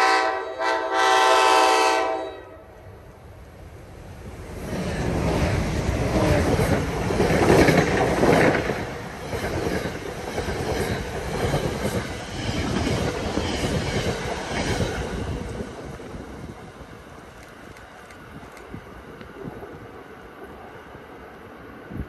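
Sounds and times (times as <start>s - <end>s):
locomotive rushing past: 3.2s - 22.0s
train wheels clicking over rail joints: 4.5s - 20.6s.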